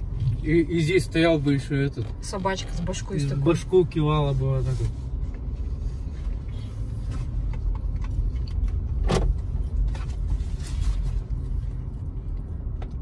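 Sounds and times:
car engine and road rumble: 0.0 - 13.0
clicks and rattles in car cabin: 7.0 - 10.3.

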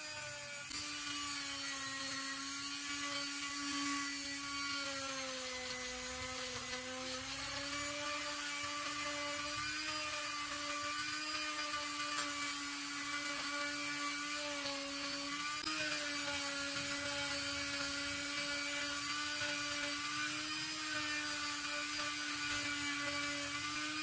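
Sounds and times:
electric screwdriver motor whine: 0.0 - 24.0.

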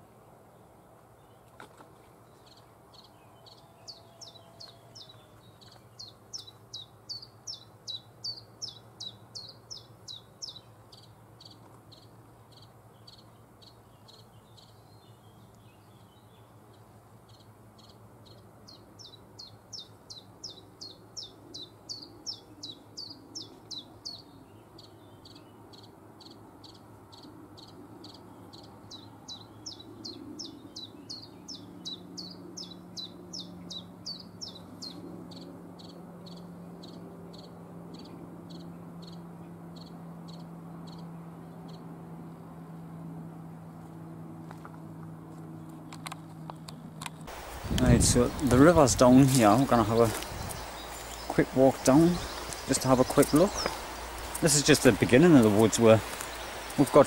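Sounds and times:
warbler singing high notes: 2.5 - 6.2, 47.3 - 57.0.

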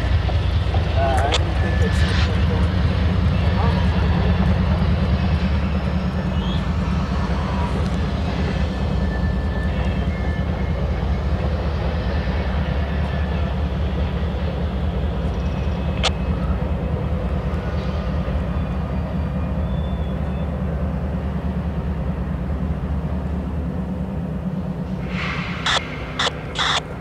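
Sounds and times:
locomotive engine rumble: 0.0 - 27.0
sharp click: 25.7 - 26.9.

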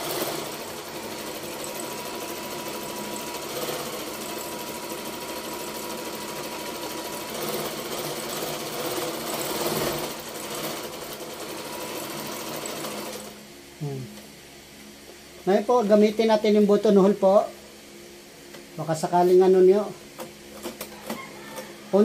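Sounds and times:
sewing machine stitching: 0.0 - 13.4.

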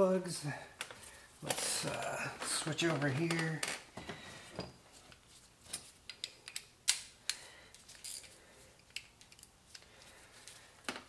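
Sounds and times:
hand tools clicking and clinking: 5.7 - 9.9.

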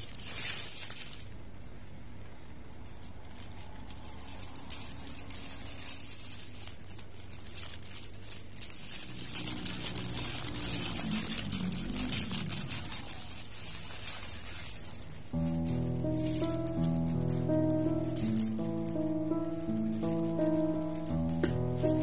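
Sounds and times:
plastic gloves crinkling: 0.0 - 22.0.

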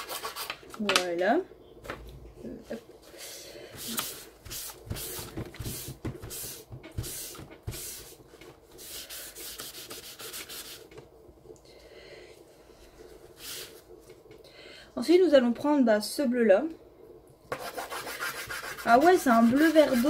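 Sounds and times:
pastel rubbing on paper: 8.8 - 10.9, 17.5 - 20.0.

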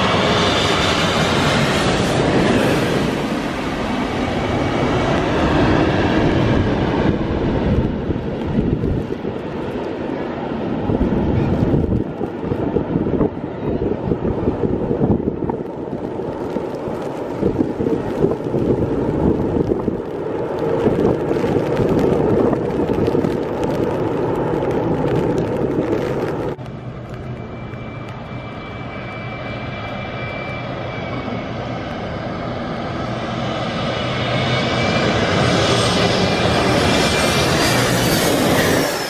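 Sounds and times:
distant jet airliner roar: 0.0 - 39.0
jet engine whine and roar: 0.0 - 39.0
rain pattering on an umbrella: 11.5 - 12.6, 15.5 - 28.6.

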